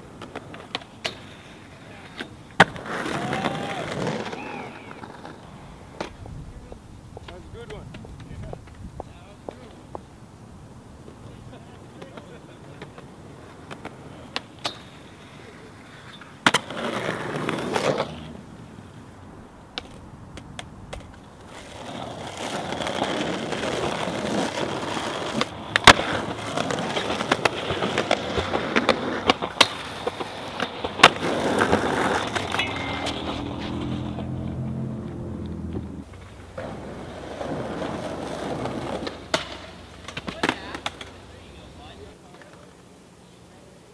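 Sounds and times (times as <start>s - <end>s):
skateboard wheels rolling on concrete: 0.0s - 43.9s
skateboard slapping down: 0.1s - 6.2s, 11.7s - 18.4s, 19.7s - 34.3s, 35.7s - 42.7s
skateboard tail pops: 2.0s - 10.1s, 16.1s - 18.4s, 19.7s - 34.0s, 35.7s - 41.2s.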